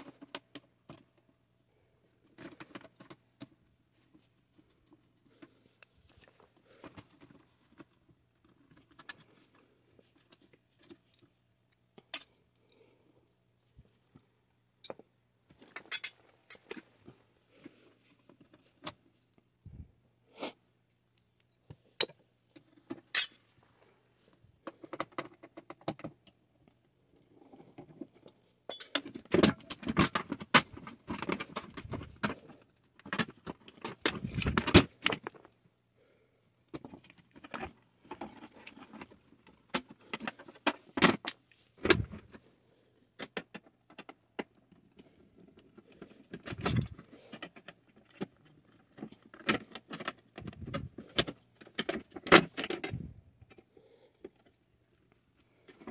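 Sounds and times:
metal parts clinking and clattering: 15.6 - 16.8, 22.9 - 23.4, 28.7 - 32.4, 33.1 - 35.1, 46.4 - 47.5.

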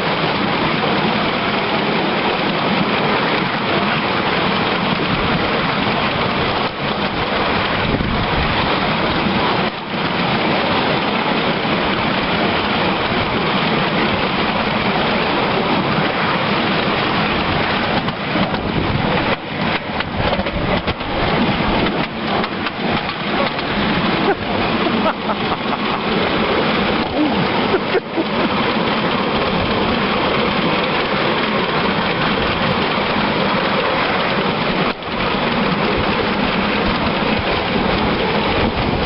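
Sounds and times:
clicks and knocks: 18.0 - 23.8.

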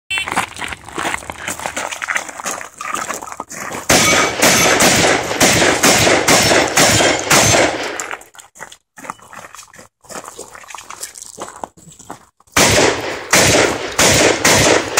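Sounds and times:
footsteps on gravel: 0.1 - 14.0
shotgun shots: 3.9 - 8.0, 12.6 - 14.9.

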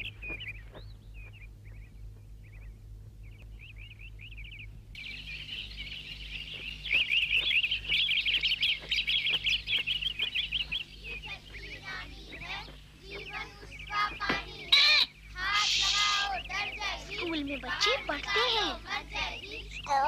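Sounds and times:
small birds twittering: 0.0 - 20.0.

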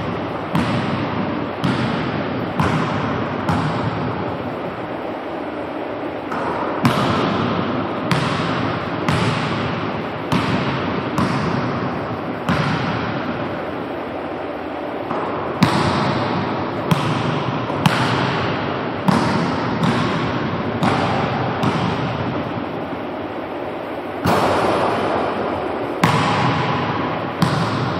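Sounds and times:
basketball bouncing on wooden floor: 0.5 - 4.0, 8.1 - 11.8, 12.5 - 13.1, 19.1 - 22.2, 26.0 - 27.9.

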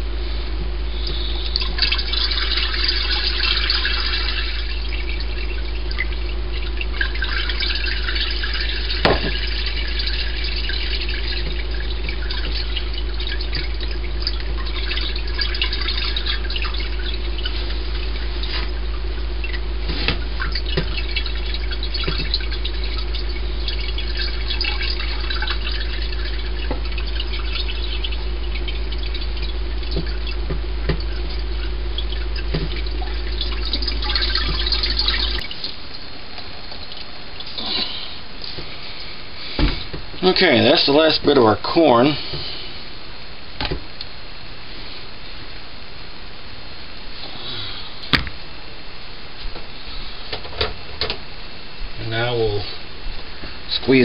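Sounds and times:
steady low hum: 0.0 - 54.0
liquid dripping and splashing: 1.0 - 37.8
liquid pouring through strainer: 1.1 - 35.8
single knock: 48.1 - 48.4.

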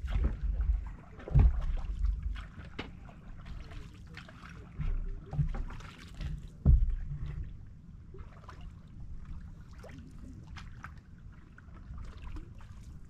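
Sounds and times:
dull thumps on boat: 0.0 - 3.0, 4.7 - 7.5
steady low rumble: 0.0 - 13.0.

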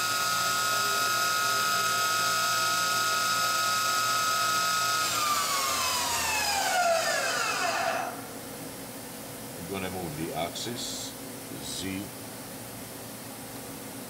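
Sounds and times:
machine spindle whining: 0.0 - 8.3.

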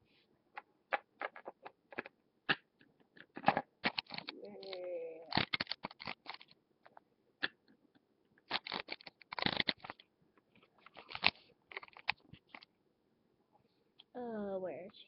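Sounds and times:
plastic toy figures clicking and tapping: 0.6 - 7.8, 10.8 - 12.7.

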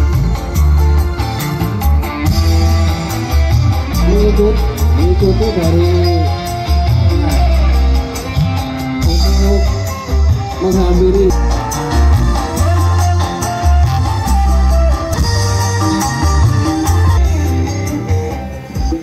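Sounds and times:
deep bass notes: 0.0 - 19.0
loud music over sound system: 0.0 - 19.0.

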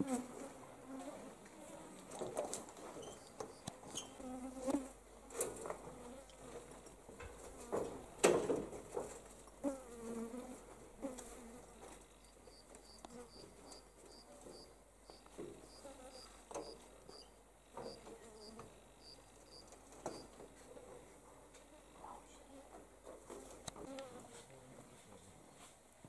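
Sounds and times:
flies buzzing: 9.6 - 20.3.

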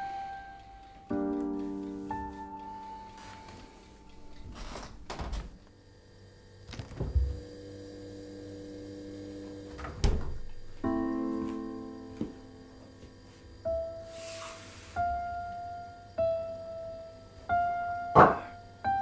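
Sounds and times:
sparse score music: 0.0 - 5.7
refrigerator door thunks: 6.8 - 7.4, 9.8 - 10.6, 18.2 - 18.5.

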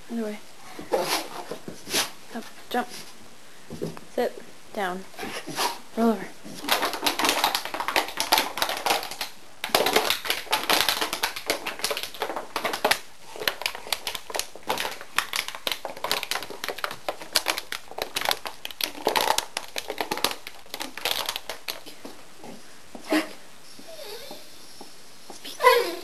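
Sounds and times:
dog claws scrabbling on hard floor: 6.4 - 22.6.

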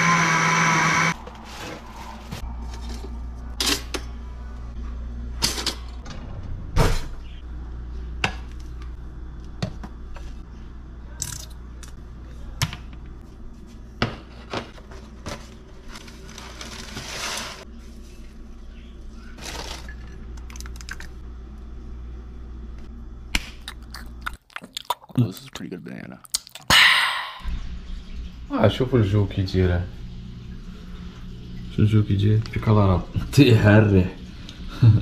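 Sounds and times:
steady low hum: 1.1 - 16.4, 17.6 - 35.0
rustle or scrape: 15.9 - 17.7.

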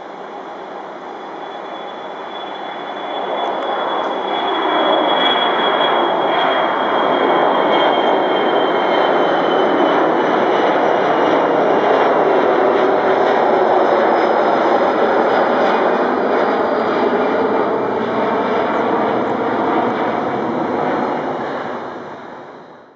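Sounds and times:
faint high whine: 0.0 - 10.3
jet engine roar: 0.0 - 22.9.

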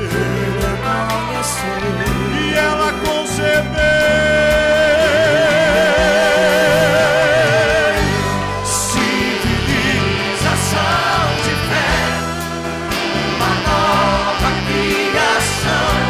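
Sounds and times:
band playing: 0.0 - 16.0
men singing gospel: 0.0 - 16.0
steady bass line: 0.0 - 16.0
singer holding high note: 3.2 - 16.0.

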